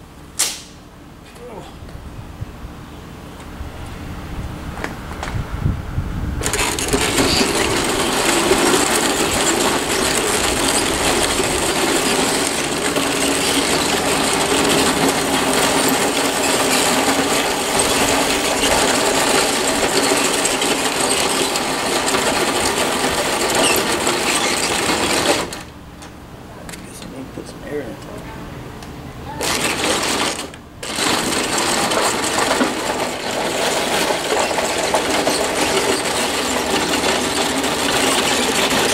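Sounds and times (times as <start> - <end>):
toy bulldozer drive whining: 6.4 - 25.7, 29.4 - 38.9
tracks clattering on concrete: 6.4 - 26.8, 29.4 - 38.9.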